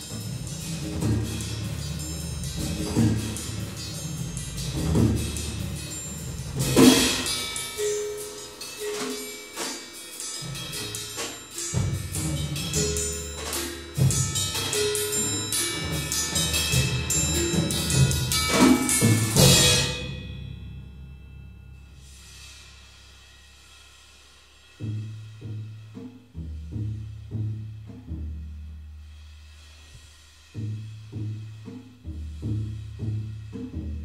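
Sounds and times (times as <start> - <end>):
tubular bells ringing: 0.0 - 23.8
percussion ensemble playing: 0.0 - 34.0.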